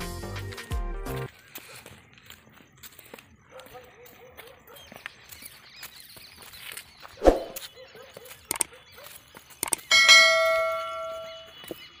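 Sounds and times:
sharp clicks: 0:08.4 - 0:08.7, 0:09.5 - 0:09.9
bright bell ding: 0:09.9 - 0:11.6.

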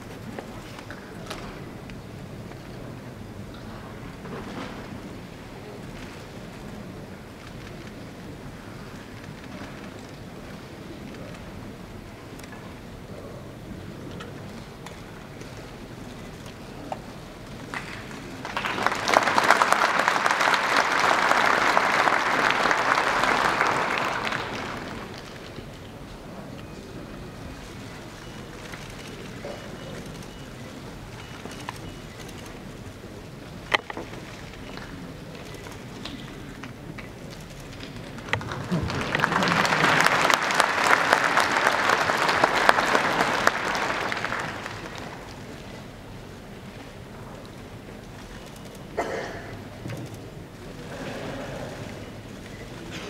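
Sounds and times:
audience applause: 0:17.7 - 0:25.6, 0:37.7 - 0:45.8.

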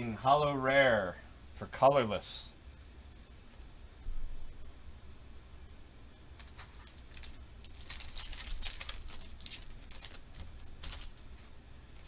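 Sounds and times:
cards and foil pack rustling: 0:06.4 - 0:12.0.

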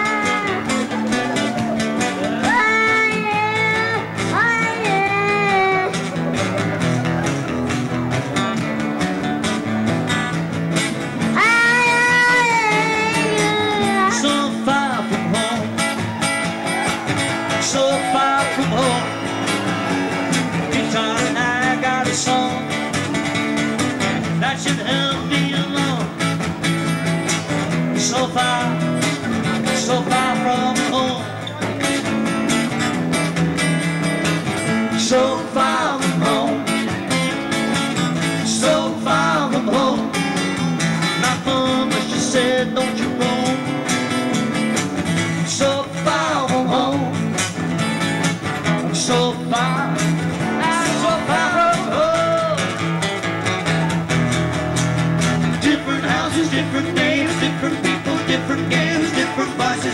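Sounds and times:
acoustic guitars strumming folk song: 0:00.0 - 0:59.9.

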